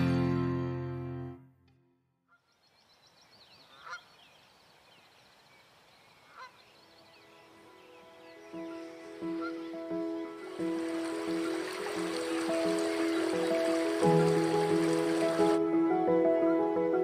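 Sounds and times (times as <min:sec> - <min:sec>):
small birds twittering: 0:02.3 - 0:15.6
goose honking: 0:03.8 - 0:04.1, 0:06.2 - 0:06.6, 0:09.4 - 0:09.7.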